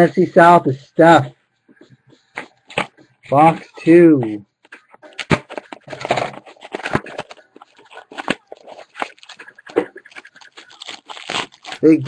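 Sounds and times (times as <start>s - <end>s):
sharp crackles: 4.6s - 12.0s
cardboard box and wrapping tearing: 5.2s - 12.0s.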